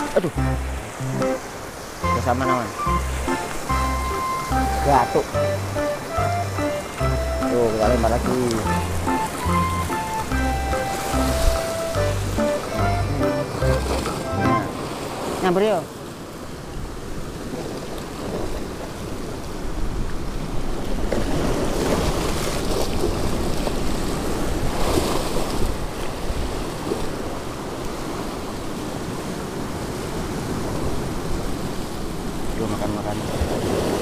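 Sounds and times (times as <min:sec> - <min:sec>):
surf breaking on rocks: 0:20.6 - 0:34.0.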